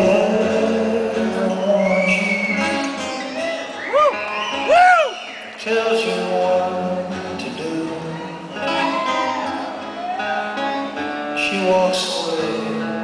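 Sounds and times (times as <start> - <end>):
live band playing slow song: 0.0 - 13.0
strummed acoustic guitar: 5.5 - 13.0.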